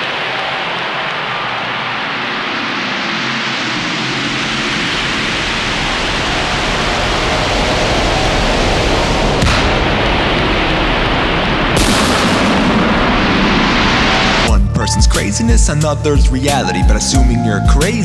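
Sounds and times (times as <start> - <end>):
sharp hit: 0.0 - 14.7
rushing noise sweep: 0.0 - 16.0.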